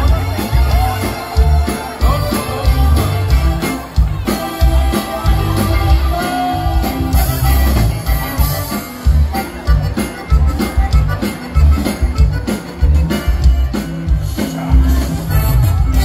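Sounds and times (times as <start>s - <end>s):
man singing into a microphone: 0.0s - 3.6s
accordion: 0.0s - 16.0s
drums: 0.0s - 16.0s
electric guitar: 0.0s - 16.0s
heavy pulsing bass: 0.0s - 16.0s.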